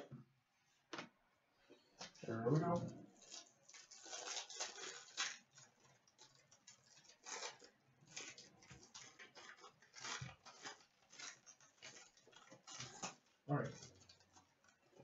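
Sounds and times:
foil wrapper crinkling and tearing: 3.1s - 15.0s.

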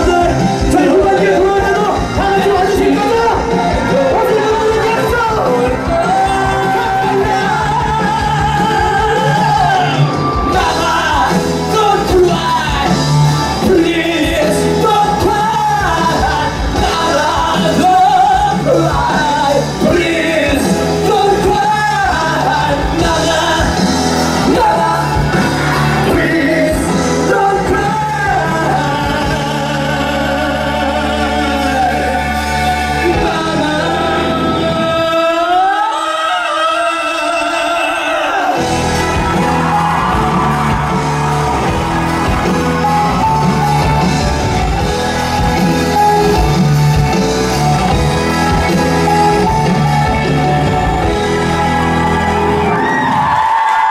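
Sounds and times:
instrumental accompaniment: 0.0s - 35.5s, 38.6s - 53.8s
man singing through a microphone: 0.0s - 40.1s.

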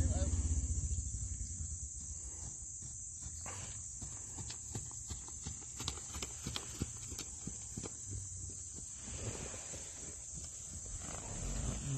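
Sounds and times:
horse hoofbeats on sand: 1.9s - 11.0s.

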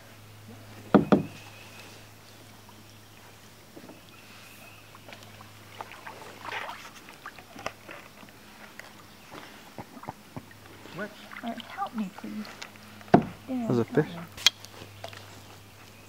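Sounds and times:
paddles swishing through water: 0.5s - 16.0s.

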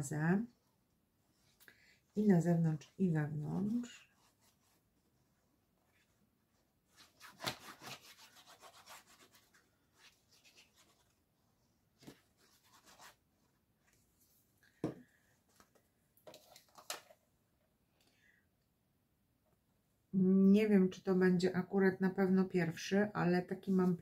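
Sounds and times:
paper rubbing on surface: 7.0s - 11.1s.

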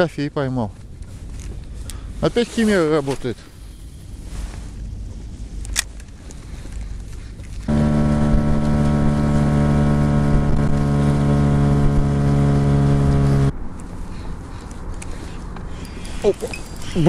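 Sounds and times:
outboard motor running: 7.7s - 13.5s.

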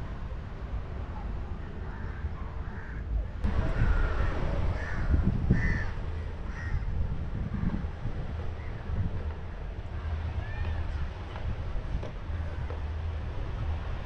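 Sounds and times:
steady low rumble: 0.0s - 14.0s
crows cawing: 2.0s - 3.0s, 3.8s - 6.9s.

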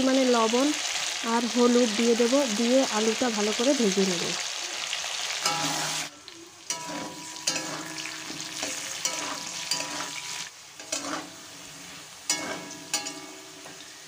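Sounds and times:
potatoes sizzling in hot oil: 0.0s - 14.0s
metal spatula scraping a pan: 5.4s - 6.1s, 6.7s - 14.0s.

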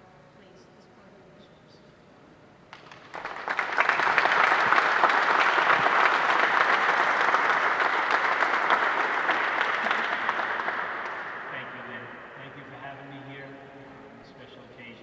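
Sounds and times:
audience applauding: 2.7s - 12.8s.

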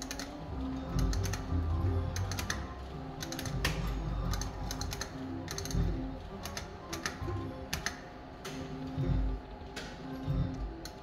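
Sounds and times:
electronic machine tones: 0.0s - 7.8s
slot machine reel clicks: 0.0s - 9.2s.

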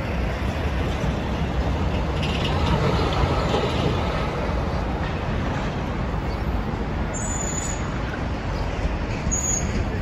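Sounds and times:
city street traffic: 0.0s - 10.0s
short high squeal: 7.1s - 7.9s, 9.3s - 9.8s.

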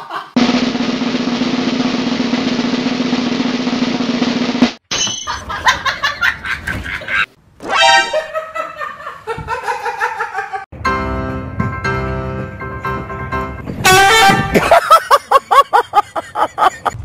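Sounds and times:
snare drum roll: 0.4s - 4.8s.

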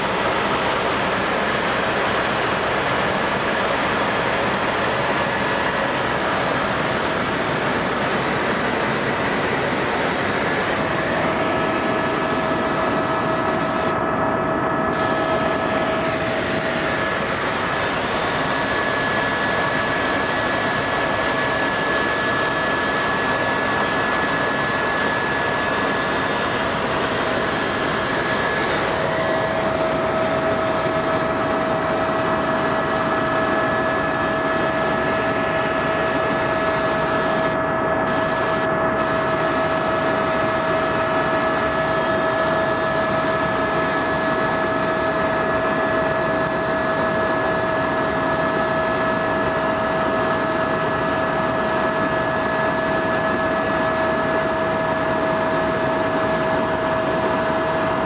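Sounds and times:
helicopter cabin drone: 0.0s - 58.0s.

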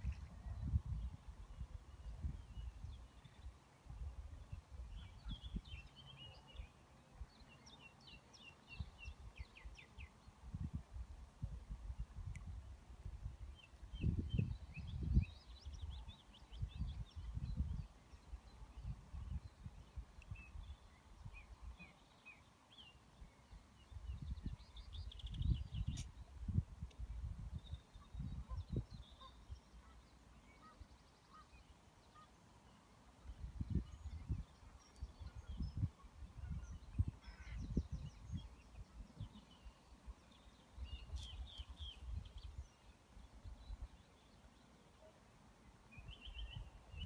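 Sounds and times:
wind buffeting microphone: 0.0s - 5.8s, 10.5s - 17.9s, 23.9s - 29.1s, 33.3s - 39.4s
small birds chirping: 13.5s - 45.2s, 45.8s - 47.0s.

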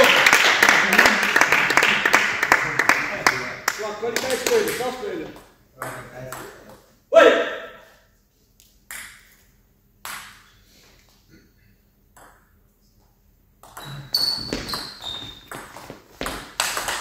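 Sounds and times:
shoes squeaking on floor: 13.8s - 16.4s.

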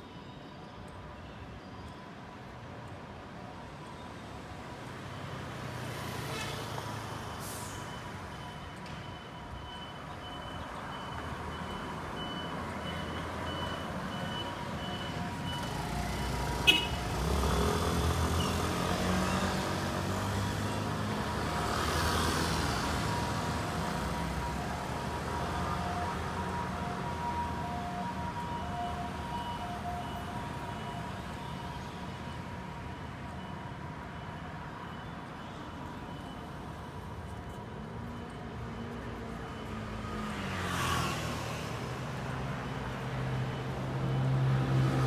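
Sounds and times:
scooter and car engines rumbling: 10.6s - 31.8s.

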